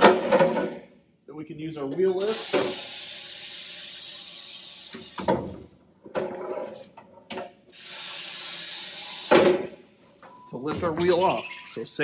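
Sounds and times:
pneumatic air hiss: 2.2 - 5.6, 7.7 - 9.7.

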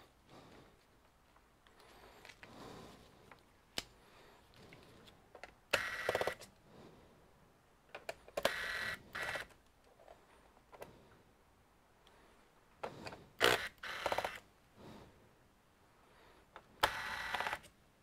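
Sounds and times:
electric screwdriver whirring: 5.8 - 6.4, 8.4 - 9.5, 13.4 - 14.4, 16.8 - 17.7.

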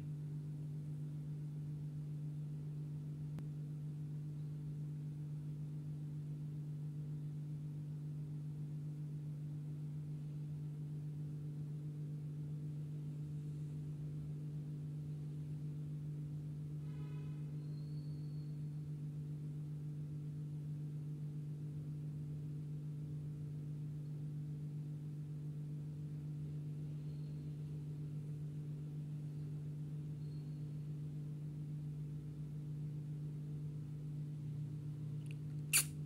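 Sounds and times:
steady low hum: 0.0 - 36.0
faint short high peeps: 17.6 - 18.6.

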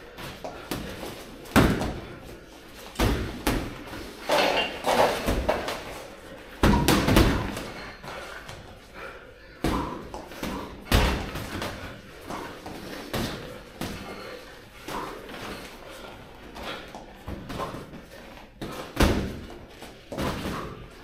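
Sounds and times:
gloved punches thudding: 0.7 - 2.1, 3.0 - 3.8, 6.6 - 7.8, 9.6 - 11.8.

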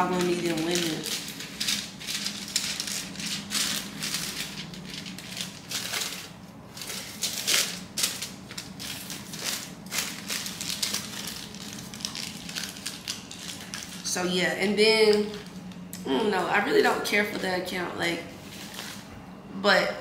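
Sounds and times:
foil pouch crinkling: 0.0 - 14.1.

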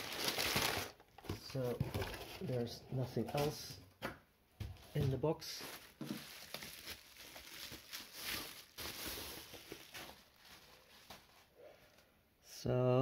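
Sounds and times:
bubble wrap crinkling: 0.0 - 1.0, 5.4 - 11.5.

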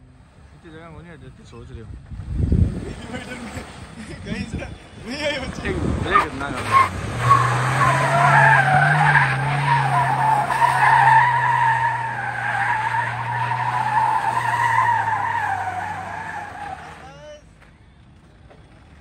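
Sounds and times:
engine at high revs: 5.6 - 17.1
tyres squealing: 6.1 - 17.2.

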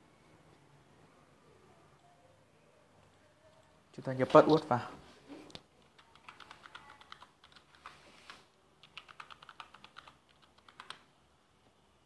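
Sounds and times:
computer keyboard key clicks: 5.5 - 7.9, 8.8 - 11.0.

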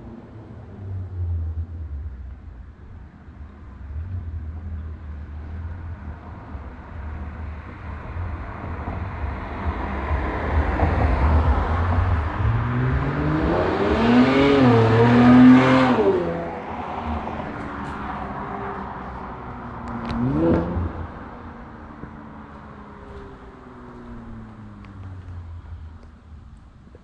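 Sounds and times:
car accelerating past: 7.6 - 25.5.

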